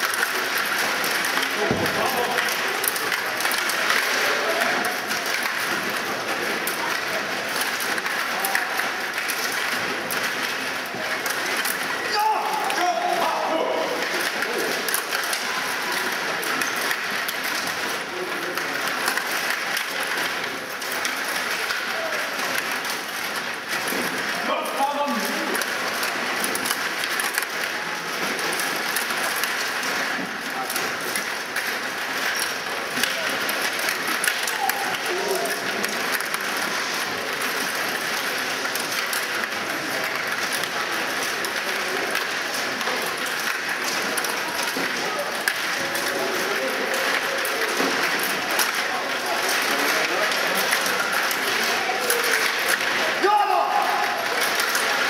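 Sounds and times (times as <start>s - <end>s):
din from other tables: 0.0s - 55.0s
murmur of voices: 0.0s - 55.0s
plastic puck clicks and clacks: 0.0s - 55.0s
table hockey rods rattling: 0.0s - 55.0s.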